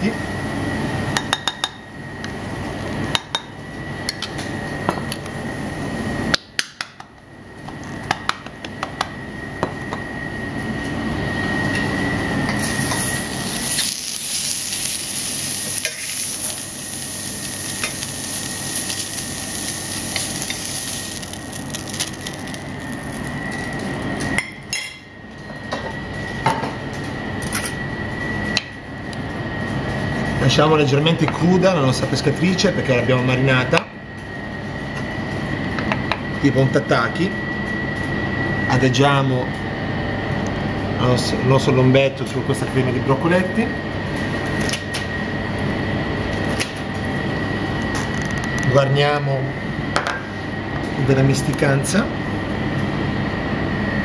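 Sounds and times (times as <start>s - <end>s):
steady high whine: 0.0s - 54.0s
fish sizzling in a frying pan: 12.6s - 23.8s.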